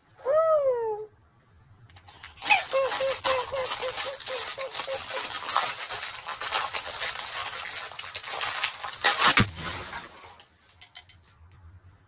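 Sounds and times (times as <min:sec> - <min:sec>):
snack bag ripping: 0:02.0 - 0:10.7
foil snack bag crinkling: 0:02.0 - 0:11.1
snacks scattering on table: 0:02.0 - 0:11.2.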